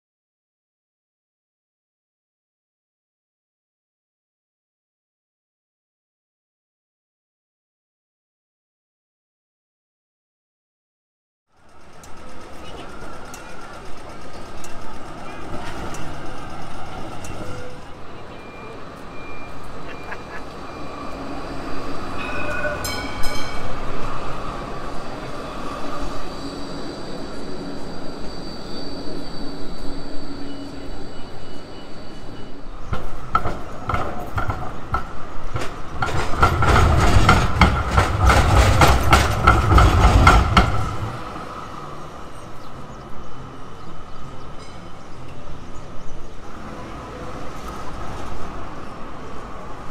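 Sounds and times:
street noise: 11.5 - 49.9
tram wheels clattering over rails: 11.5 - 49.9.

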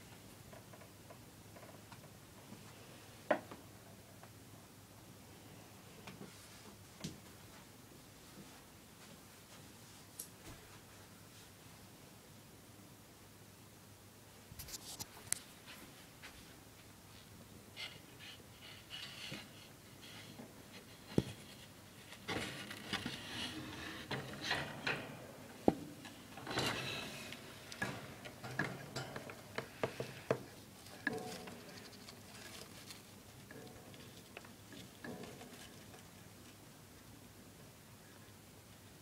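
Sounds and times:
rustling: 14.6 - 36.6
clicks and knocks on cage bars: 22.2 - 31.8.

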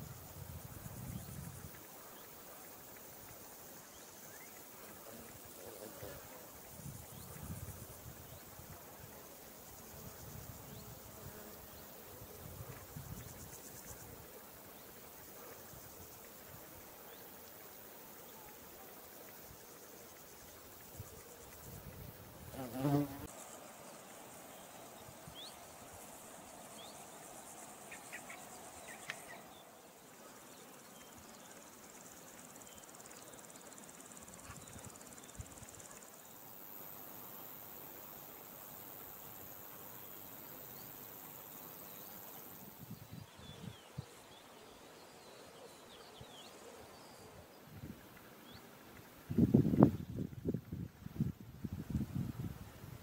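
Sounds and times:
insects chirring: 0.0 - 53.0
bumblebee buzzing: 22.4 - 23.4.

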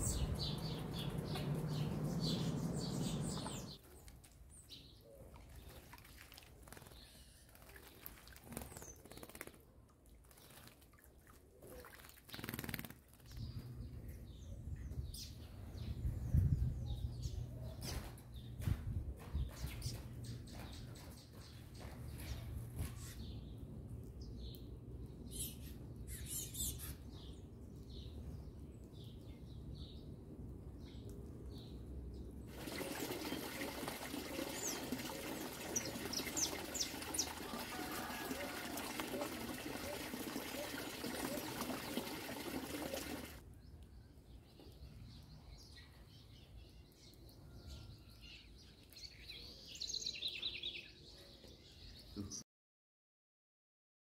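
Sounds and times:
small birds chirping: 0.0 - 5.9, 11.8 - 30.2, 33.1 - 37.9
water splashing into bamboo trough: 32.5 - 43.4.

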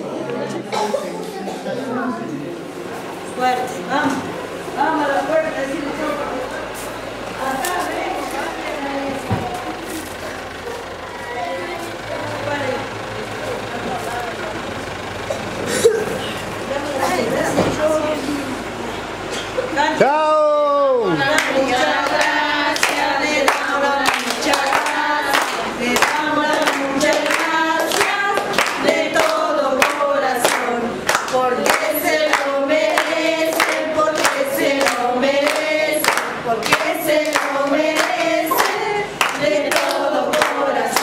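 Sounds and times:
children and women singing: 3.9 - 14.2, 21.0 - 41.0
hands clapping in time: 21.4 - 41.0.

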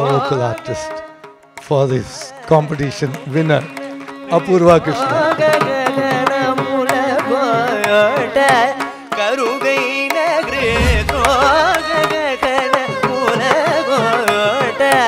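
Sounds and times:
deep bass drum stroke: 10.5 - 12.2.

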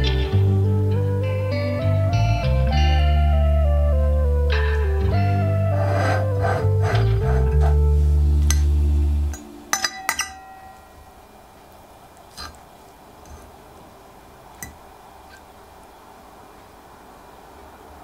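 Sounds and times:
background music: 0.0 - 10.6
cutlery clinking on plate: 8.5 - 8.7, 9.3 - 10.9, 12.3 - 12.6, 13.3 - 13.5.

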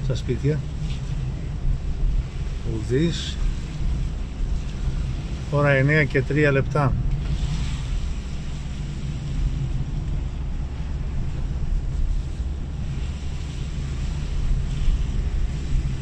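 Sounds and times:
car engine and road rumble: 0.0 - 16.0
tyre hiss on wet road: 7.1 - 16.0.

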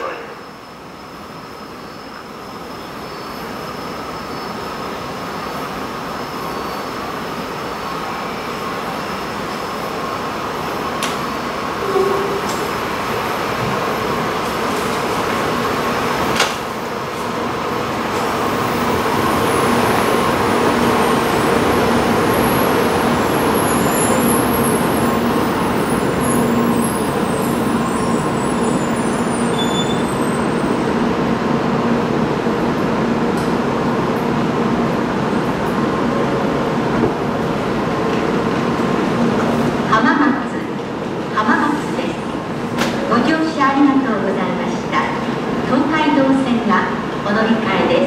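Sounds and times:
train electrical hum: 0.0 - 48.0.

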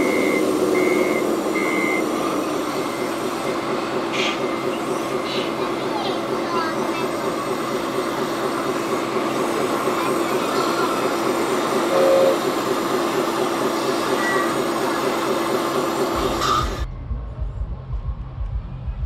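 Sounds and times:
brief higher tone: 11.9 - 12.4.

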